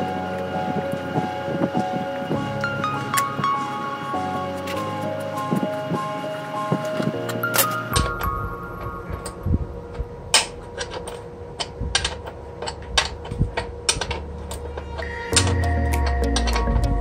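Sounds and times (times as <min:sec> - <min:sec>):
background music: 0:00.0 - 0:10.4, 0:14.2 - 0:17.0
low steady hum: 0:00.0 - 0:17.0.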